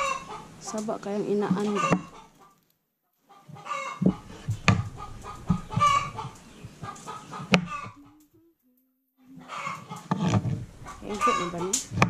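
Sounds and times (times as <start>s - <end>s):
chickens clucking: 0.0s - 2.6s, 3.2s - 8.5s, 9.3s - 12.0s.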